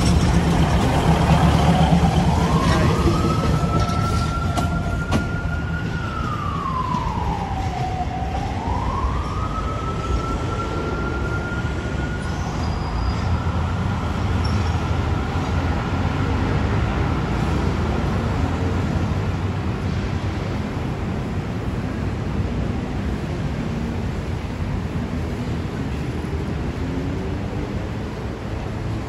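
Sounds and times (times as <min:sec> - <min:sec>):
diesel train rumbling past: 0:00.0 - 0:29.0
traffic: 0:00.0 - 0:29.0
siren wailing: 0:00.1 - 0:16.0.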